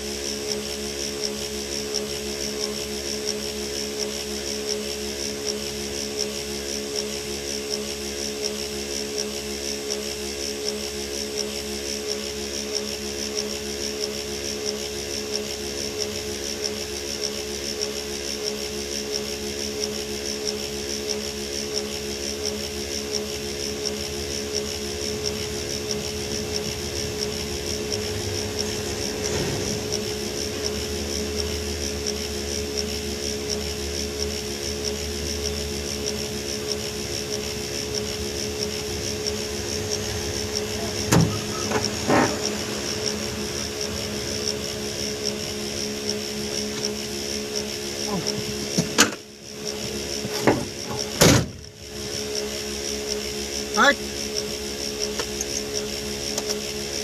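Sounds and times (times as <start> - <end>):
steady high whine: 0.0 - 57.0
diesel engine idling: 24.0 - 47.0.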